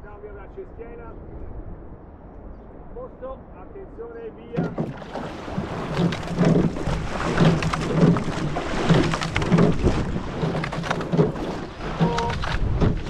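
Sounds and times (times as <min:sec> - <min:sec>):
water rushing against hull: 0:04.5 - 0:13.0
oar blades splashing: 0:04.6 - 0:13.0
oars thumping in oarlocks: 0:04.6 - 0:13.0.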